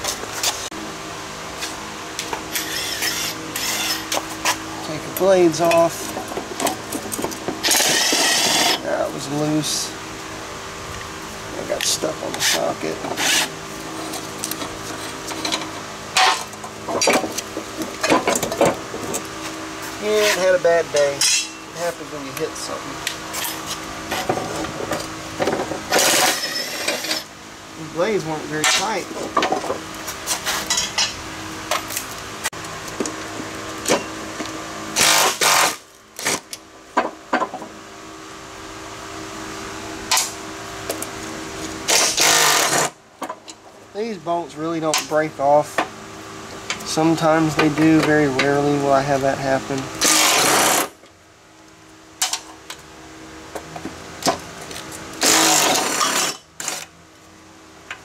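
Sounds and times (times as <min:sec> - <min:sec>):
impact wrench hammering: 0:21.2 - 0:21.6.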